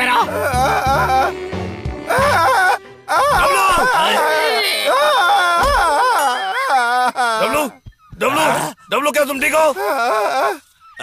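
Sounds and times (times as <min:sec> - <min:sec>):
cartoon background music: 0:00.0 - 0:04.9.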